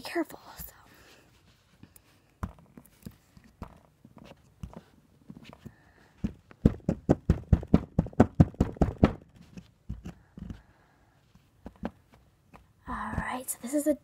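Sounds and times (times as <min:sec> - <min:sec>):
screwdriver chipping plaster: 0:08.4 - 0:10.7.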